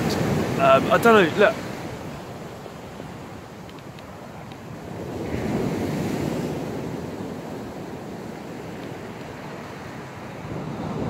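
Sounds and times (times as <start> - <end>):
sea waves breaking on beach: 0.0 - 11.0.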